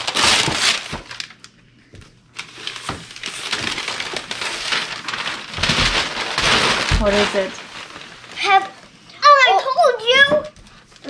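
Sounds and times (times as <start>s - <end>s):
wrapping paper tearing and crinkling: 0.0s - 1.5s, 2.3s - 9.0s.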